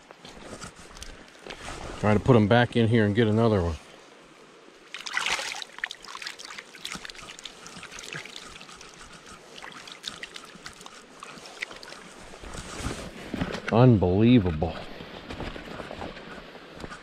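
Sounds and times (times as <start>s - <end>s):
stream flowing: 2.8s - 13.2s
hands splashing in water: 4.8s - 12.6s
water trickling: 4.8s - 12.8s.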